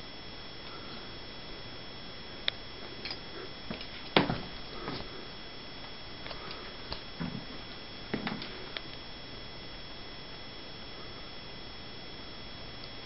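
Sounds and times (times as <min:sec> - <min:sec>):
faint high whine: 0:00.0 - 0:13.0
steady hiss: 0:00.0 - 0:13.0.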